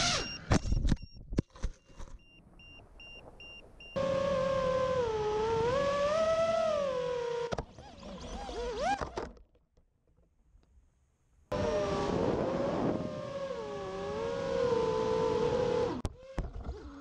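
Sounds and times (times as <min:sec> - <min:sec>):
drone motors whining: 0:04.0 - 0:09.2, 0:11.5 - 0:17.0.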